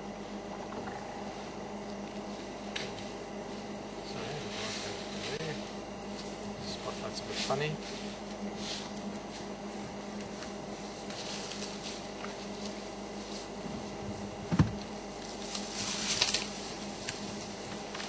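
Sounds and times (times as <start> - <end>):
steady low hum: 0.0 - 18.0
twigs and leaves crackling: 15.2 - 18.0.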